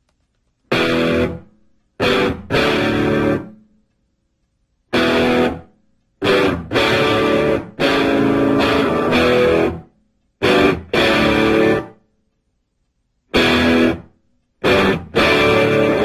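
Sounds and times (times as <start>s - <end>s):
rock music with electric guitar: 0.7s - 1.4s, 2.0s - 3.6s, 4.9s - 9.8s, 10.4s - 11.9s, 13.3s - 14.0s, 14.6s - 16.0s.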